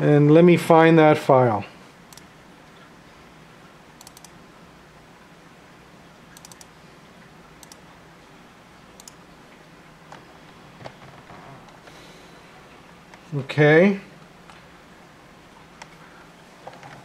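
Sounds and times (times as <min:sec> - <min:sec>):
low steady hum: 0:00.0 - 0:17.0
computer mouse clicks: 0:04.0 - 0:04.4, 0:06.4 - 0:06.7, 0:07.6 - 0:07.8, 0:09.0 - 0:09.2.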